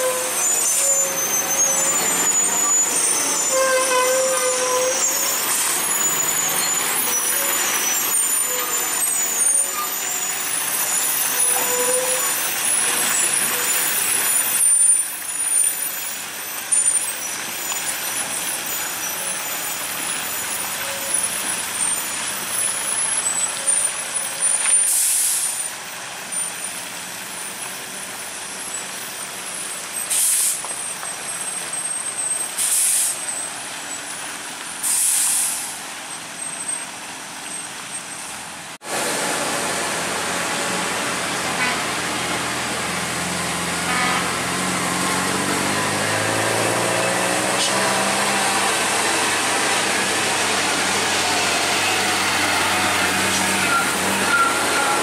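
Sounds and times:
truck engine driving off: 0:00.0 - 0:55.0
air brake hisses: 0:24.7 - 0:25.8, 0:30.0 - 0:30.7, 0:32.4 - 0:33.3, 0:34.8 - 0:35.8.

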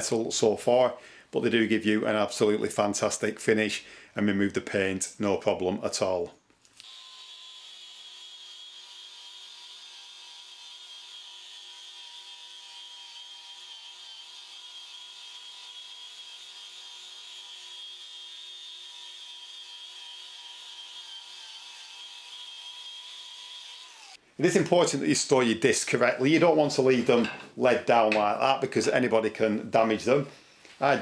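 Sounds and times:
angle grinder whining on metal pipe: 0:06.8 - 0:24.2.

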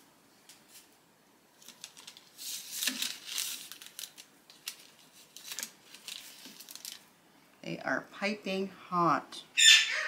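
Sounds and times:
parchment paper crinkling: 0:01.5 - 0:07.1.

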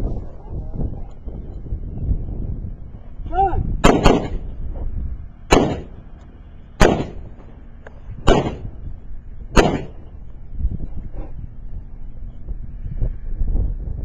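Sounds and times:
rifle shots with echo: 0:03.8 - 0:04.4, 0:05.5 - 0:06.0, 0:06.8 - 0:07.4, 0:08.2 - 0:08.8, 0:09.5 - 0:10.1.

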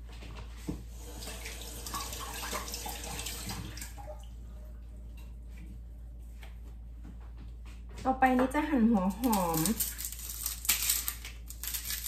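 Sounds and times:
tap water running into sink: 0:00.9 - 0:04.3.

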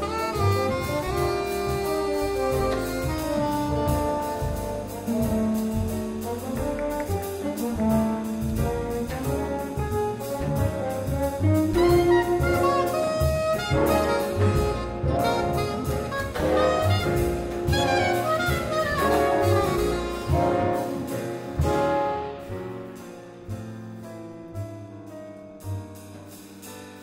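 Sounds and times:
soprano saxophone: 0:00.0 - 0:04.4, 0:11.6 - 0:20.6
french horns holding chords: 0:00.0 - 0:05.7
steady drum strokes: 0:00.0 - 0:23.7
tuba: 0:00.0 - 0:26.6
piano: 0:00.0 - 0:27.0
upright bass: 0:00.0 - 0:27.0.

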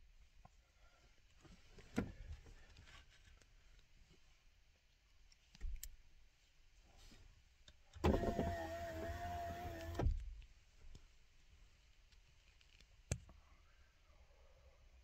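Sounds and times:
power window motor whine: 0:08.0 - 0:10.1.

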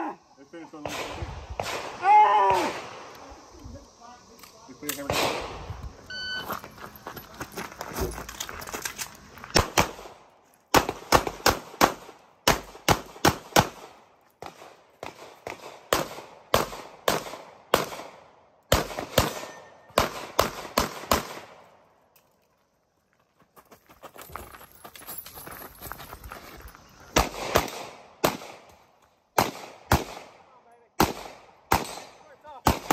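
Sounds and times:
pistol firing rapid shots: 0:10.7 - 0:21.5, 0:29.4 - 0:30.4, 0:31.0 - 0:32.9.

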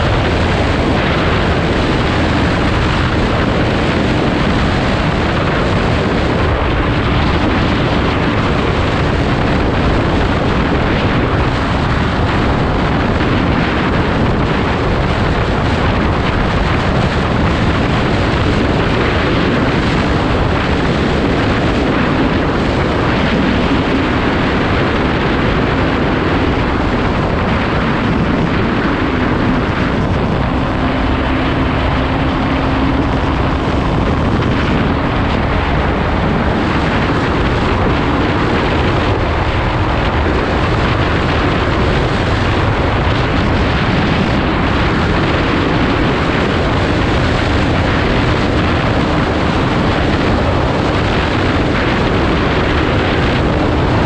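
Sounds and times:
wind rush on microphone: 0:00.0 - 0:54.0
motorcycle engine steady note: 0:24.4 - 0:43.6.

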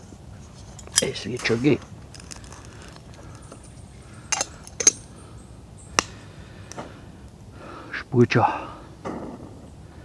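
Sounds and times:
wood fire cracking: 0:00.8 - 0:05.0.

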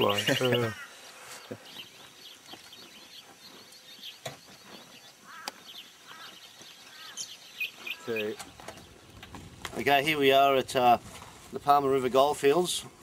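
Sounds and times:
birds chirping: 0:00.0 - 0:12.9.

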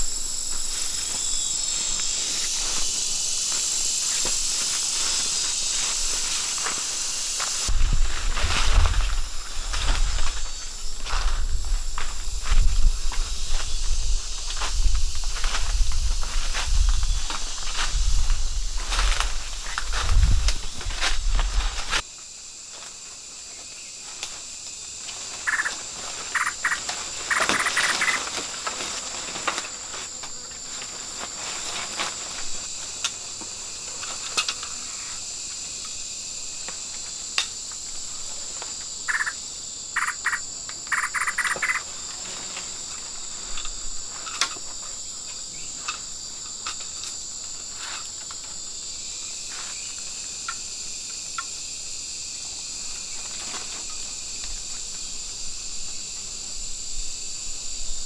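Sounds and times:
insects shrilling: 0:00.0 - 0:58.0
rapid chirps: 0:25.5 - 0:28.2, 0:39.1 - 0:39.4, 0:40.0 - 0:41.8.

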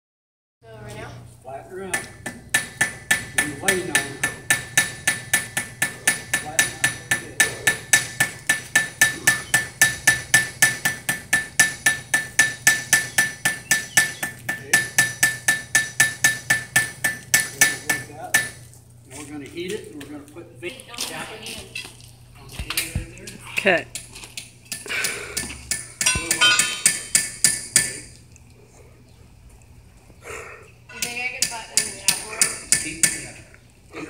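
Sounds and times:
hammer blows ringing on anvil: 0:01.9 - 0:18.6, 0:25.4 - 0:28.0.

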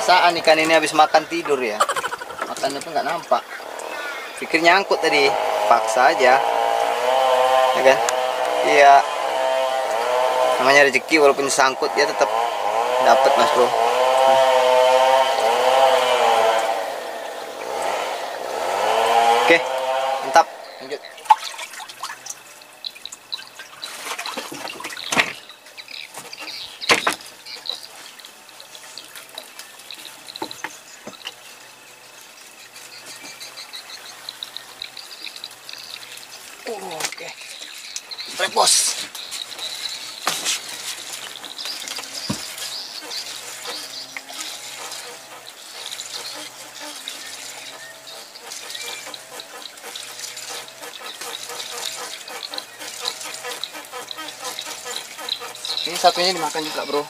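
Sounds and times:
water lapping at boat: 0:08.8 - 0:57.0
short chirping calls: 0:24.9 - 0:57.0.

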